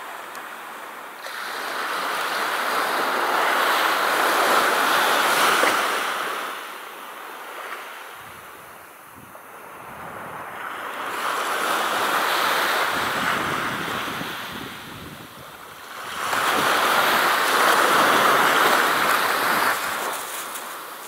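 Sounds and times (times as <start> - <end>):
small waves washing onto shore: 0.0 - 21.0
wind on microphone: 8.1 - 20.9.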